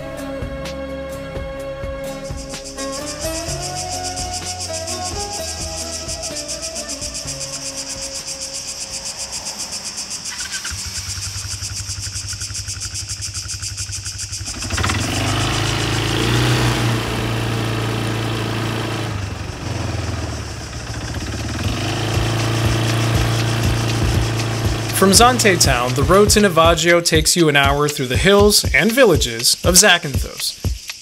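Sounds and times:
insects chirring: 1.8 - 31.0
quad bike engine: 2.1 - 26.8.

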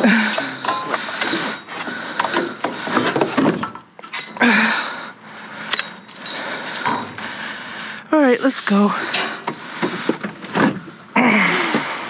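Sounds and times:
objects knocking and scraping: 0.0 - 4.4, 5.7 - 7.4, 9.0 - 11.0.

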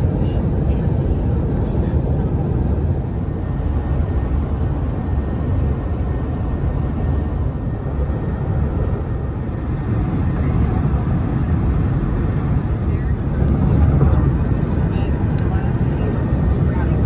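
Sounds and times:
vehicle road and engine rumble: 0.0 - 17.0.

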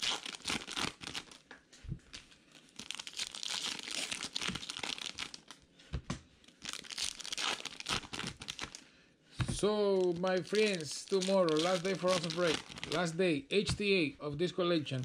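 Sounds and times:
foil wrapper crinkling and tearing: 0.0 - 1.5, 2.1 - 5.6, 6.4 - 8.8, 9.6 - 13.2.

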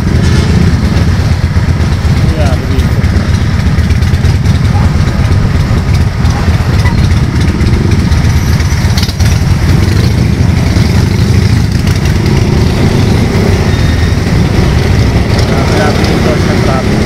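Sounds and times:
motorcycle engine rumbling: 0.0 - 17.0
surrounding traffic engines: 0.0 - 17.0.

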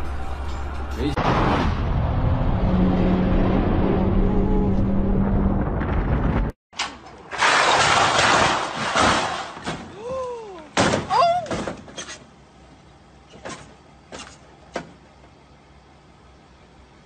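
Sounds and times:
car crash: 1.2 - 3.8, 5.3 - 10.0
car scraping down steel ramps: 6.8 - 9.9
person crying out: 9.9 - 11.5.

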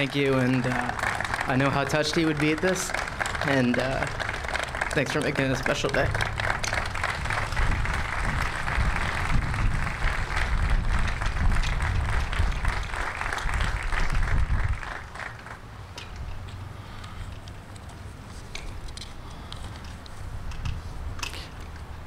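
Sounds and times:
audience applauding: 0.0 - 15.6.

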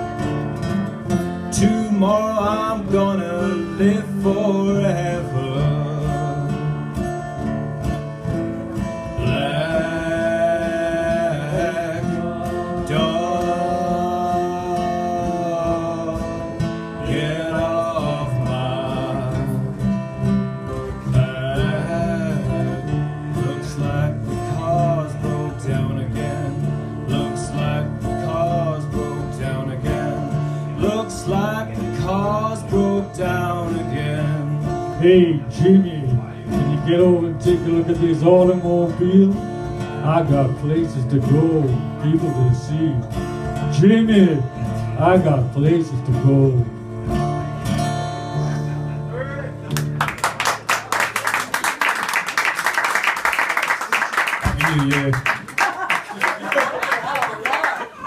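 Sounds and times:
acoustic guitars strummed: 0.0 - 58.0
man yodel-style singing: 1.5 - 6.9, 9.2 - 20.0, 21.0 - 46.7.

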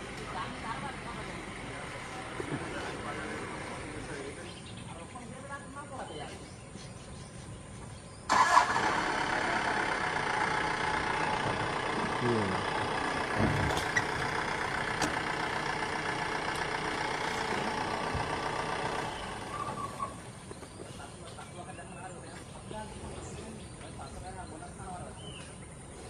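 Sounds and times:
jeep engine running: 0.0 - 5.1, 8.3 - 20.8.

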